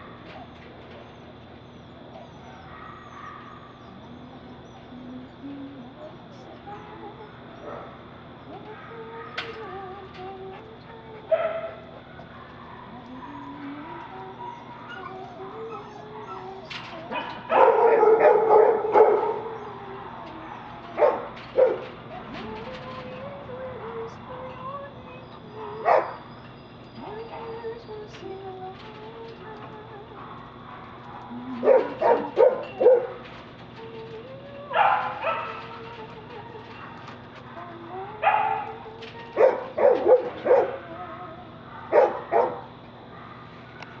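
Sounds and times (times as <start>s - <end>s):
dog barking: 2.2s - 3.9s, 7.6s - 8.1s, 10.5s - 21.9s, 25.5s - 26.2s, 29.5s - 33.3s, 34.7s - 35.9s, 36.7s - 40.9s, 41.7s - 44.0s.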